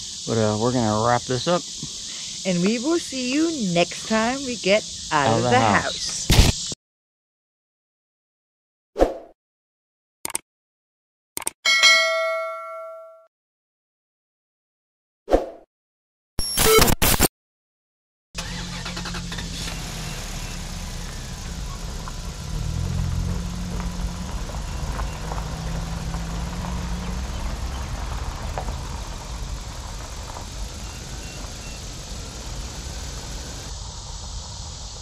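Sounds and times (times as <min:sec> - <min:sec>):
vehicle engine running: 0:18.4 - 0:35.0.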